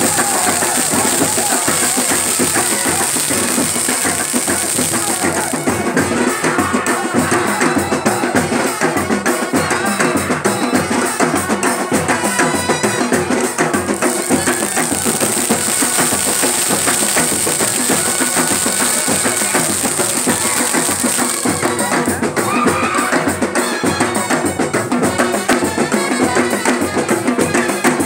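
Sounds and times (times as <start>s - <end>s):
loud drum-led music: 0.0s - 28.0s.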